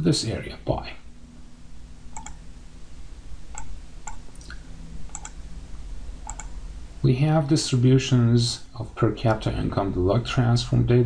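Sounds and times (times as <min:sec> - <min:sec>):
computer mouse clicking: 0:02.1 - 0:02.4, 0:03.5 - 0:05.4, 0:06.3 - 0:06.5.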